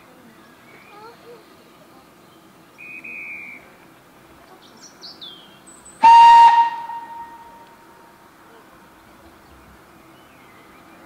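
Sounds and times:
birds chirping: 0.1 - 3.8, 4.4 - 7.8, 8.6 - 11.0
high steady single-note whistle: 2.8 - 3.6, 6.0 - 7.8
steam locomotive whistle blast: 6.0 - 7.8.

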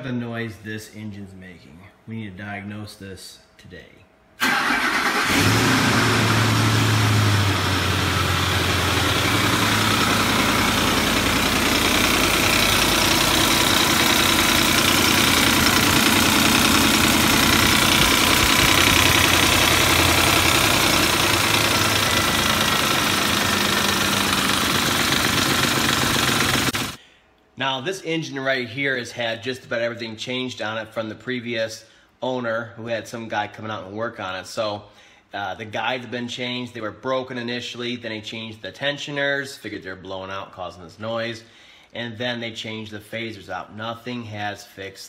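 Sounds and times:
engine idling: 4.4 - 27.0
grating chain noise in engine: 11.9 - 27.0.

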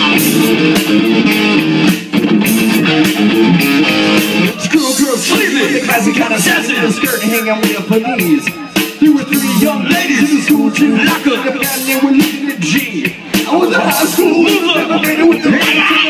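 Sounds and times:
bass guitar: 0.0 - 16.0
drums: 0.0 - 16.0
electric guitar: 0.0 - 16.0
person singing: 4.4 - 16.0.

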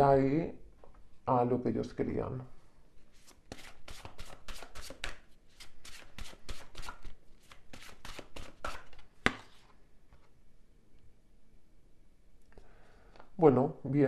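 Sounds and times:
cards being shuffled: 3.1 - 10.3.

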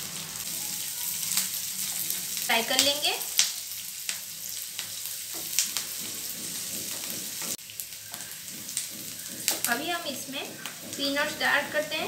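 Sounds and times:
onions sizzling in oil: 0.0 - 12.0
spatula scraping and tapping pan: 4.1 - 12.0.

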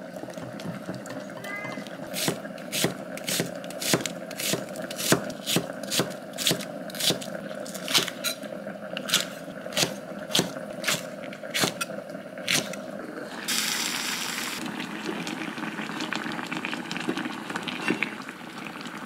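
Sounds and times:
knife chopping on wooden board: 2.2 - 7.2, 9.1 - 11.0.

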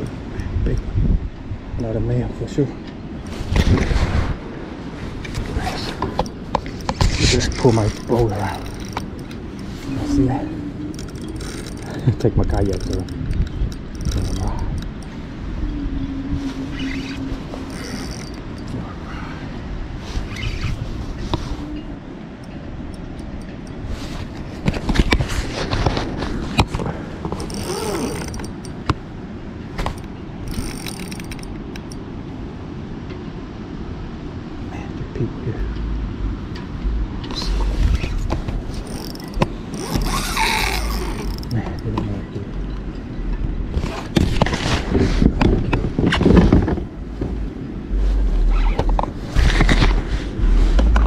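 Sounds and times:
wind buffeting microphone: 0.0 - 51.0
sharp ratchety clicks: 12.5 - 15.1, 30.5 - 32.0, 38.8 - 41.6.

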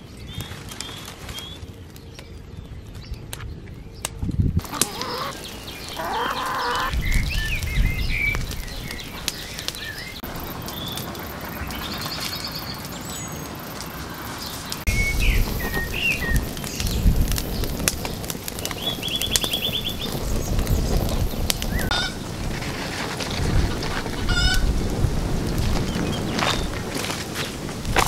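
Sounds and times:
birds chirping and trilling: 0.0 - 22.3
wood fire crackling and popping: 0.0 - 28.0
low rumble: 5.4 - 26.8.

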